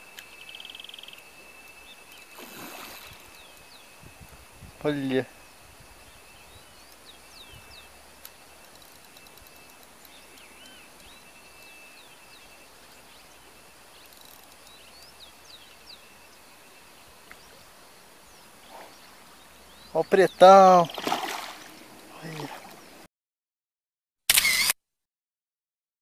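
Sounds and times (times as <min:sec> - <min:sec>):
high insect drone: 0:00.0 - 0:19.9
birds whistling calls: 0:00.3 - 0:23.0.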